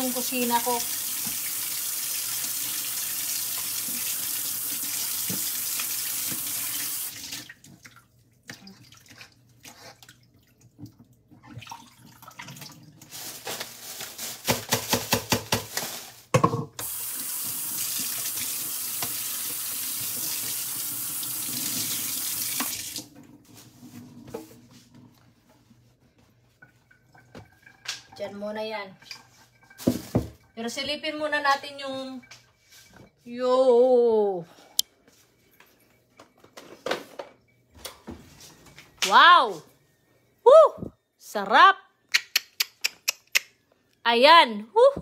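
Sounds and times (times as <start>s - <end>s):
sink tap running: 0.0s - 7.4s, 16.8s - 23.1s.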